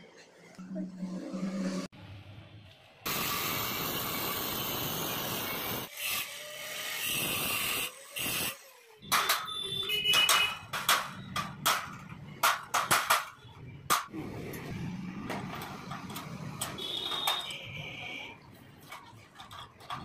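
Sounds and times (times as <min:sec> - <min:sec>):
hammer striking metal punch: 0:10.1 - 0:14.1.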